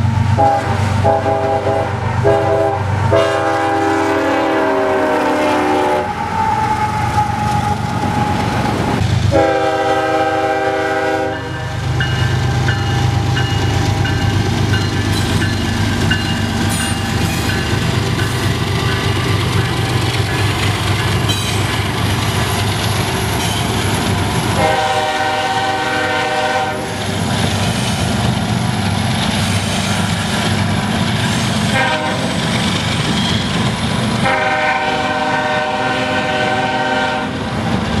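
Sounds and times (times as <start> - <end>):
train rumble and wheel clatter: 0.0 - 38.0
locomotive air horn blasts: 0.4 - 7.3, 9.3 - 11.8, 24.6 - 27.0, 31.7 - 32.4, 34.2 - 37.4.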